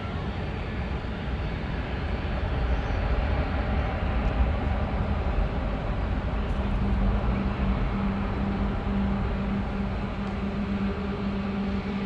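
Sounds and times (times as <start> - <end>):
distant jet engines reverse thrust: 0.0 - 12.0.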